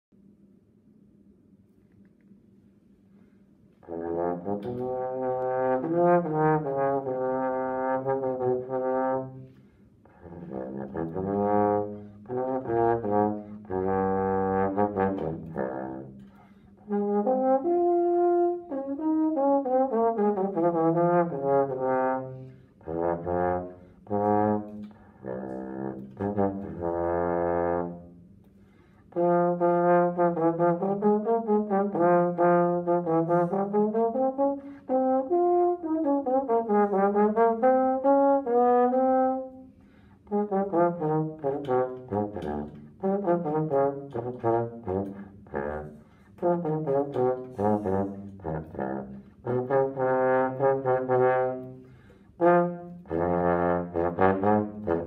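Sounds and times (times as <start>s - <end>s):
trombone playing slow melody: 3.8s - 55.0s
player breathing: 39.7s - 40.2s, 51.8s - 52.4s.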